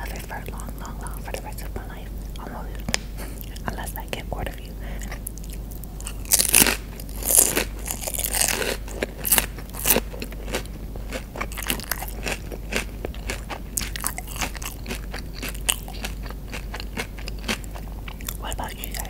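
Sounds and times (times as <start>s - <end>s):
chewing crunchy chip: 5.0s - 19.0s.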